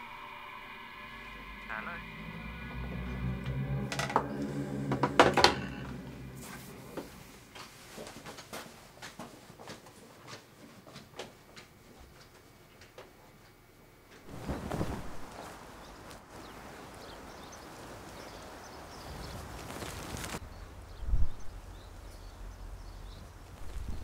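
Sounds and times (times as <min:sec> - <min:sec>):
footsteps and handling knocks: 0:07.0 - 0:13.5
rustle: 0:14.2 - 0:24.0.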